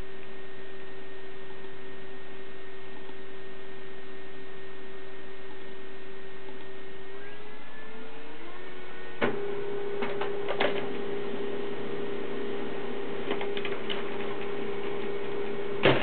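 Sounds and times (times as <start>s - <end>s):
printer humming: 0.0s - 16.0s
printer clicks: 13.2s - 14.5s.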